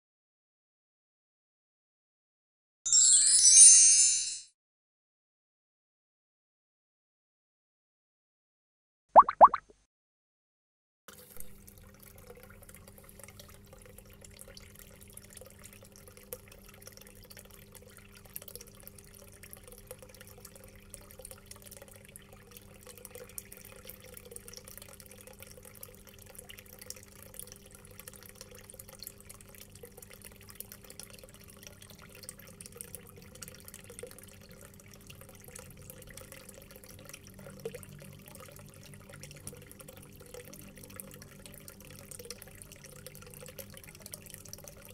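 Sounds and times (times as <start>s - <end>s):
aquarium air bubbling: 9.2s - 9.7s
tank water splashing: 9.2s - 9.7s.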